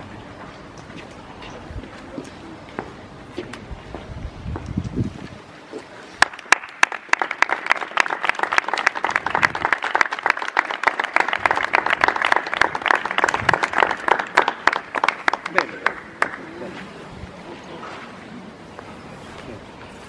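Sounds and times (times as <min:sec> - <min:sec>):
crowd applauding: 0:06.2 - 0:16.6.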